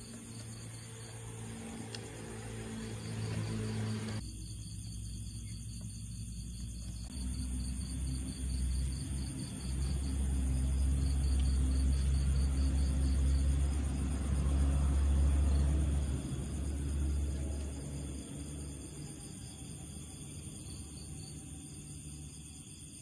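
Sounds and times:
night insects chirping: 0:00.0 - 0:23.0
low rumble: 0:07.0 - 0:22.0.

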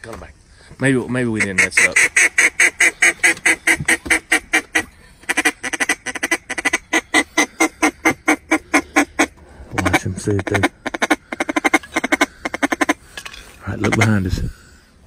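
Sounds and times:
duck call quacks: 0:01.3 - 0:13.0, 0:13.8 - 0:14.2.

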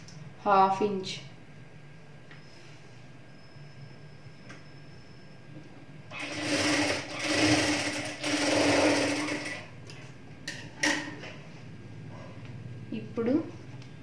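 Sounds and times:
sewing machine stitching: 0:06.1 - 0:09.7.

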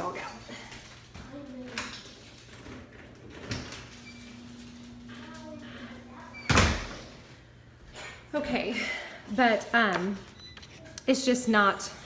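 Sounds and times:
faint household sounds: 0:00.0 - 0:12.0
door banging shut: 0:06.4 - 0:07.1.

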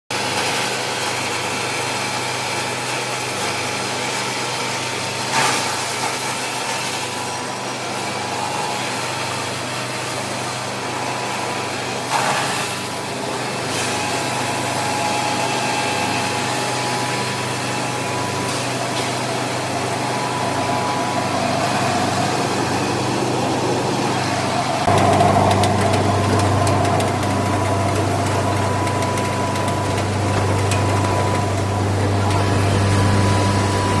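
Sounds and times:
machine motors droning: 0:14.2 - 0:34.0.

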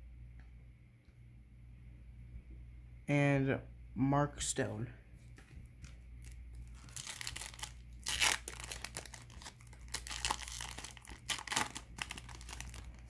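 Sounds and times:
foil wrapper tearing and crinkling: 0:06.2 - 0:13.0.

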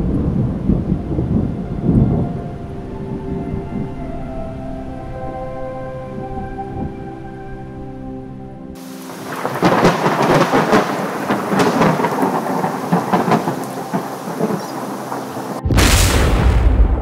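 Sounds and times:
loud thunderclap: 0:00.0 - 0:02.4, 0:09.1 - 0:17.0
crackling rolling thunder: 0:00.0 - 0:04.5, 0:08.8 - 0:17.0
steady rain: 0:00.0 - 0:05.4, 0:08.8 - 0:17.0.

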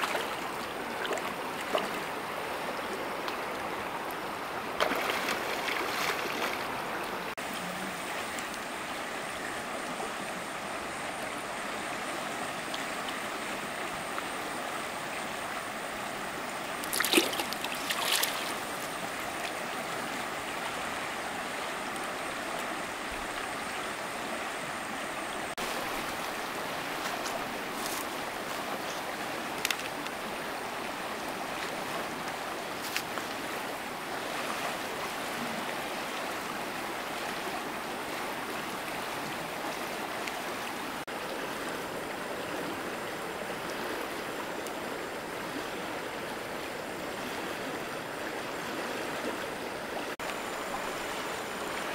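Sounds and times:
river flowing: 0:00.0 - 0:51.9
splashes and knocks: 0:04.8 - 0:06.7, 0:16.8 - 0:18.8.

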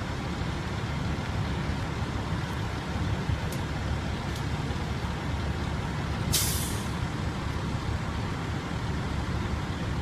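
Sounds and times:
fire truck idling: 0:00.0 - 0:10.0
air brake hiss: 0:06.3 - 0:07.0.

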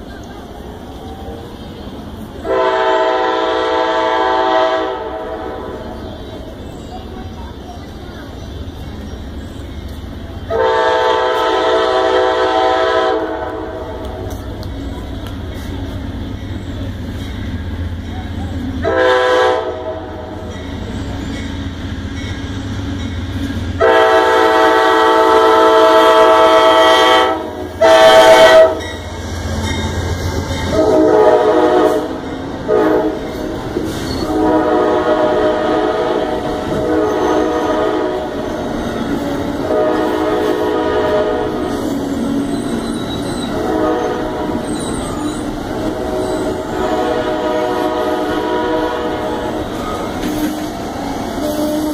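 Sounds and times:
train rumbling: 0:00.0 - 0:51.9
train horn blasts: 0:02.4 - 0:05.8, 0:10.5 - 0:14.2, 0:18.8 - 0:20.4, 0:23.8 - 0:29.1, 0:30.6 - 0:33.3, 0:34.2 - 0:38.6, 0:39.3 - 0:42.8, 0:43.4 - 0:44.7, 0:45.8 - 0:50.8, 0:51.4 - 0:51.9
crossing bell ringing: 0:15.5 - 0:18.6, 0:20.2 - 0:23.5, 0:28.7 - 0:31.1.

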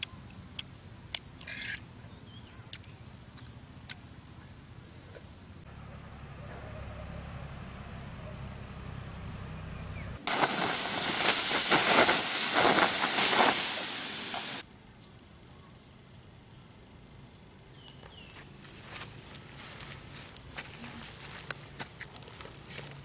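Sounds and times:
water hissing on hot embers: 0:10.2 - 0:14.6.

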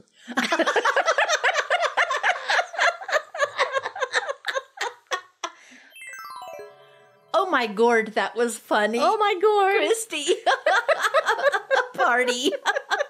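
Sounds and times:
women laughing: 0:00.4 - 0:05.5, 0:10.2 - 0:13.0.

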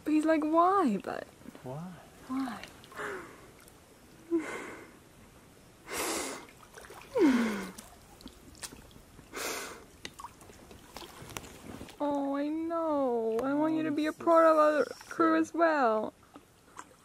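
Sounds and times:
person exhaling and laughing softly: 0:07.1 - 0:08.0
person sighing: 0:07.2 - 0:07.8.

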